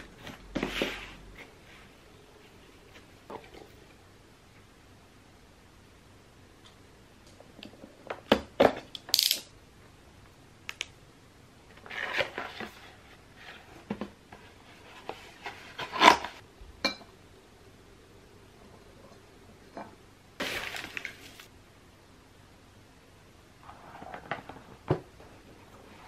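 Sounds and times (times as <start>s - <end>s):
paper packaging rustling: 20.4s - 21.5s.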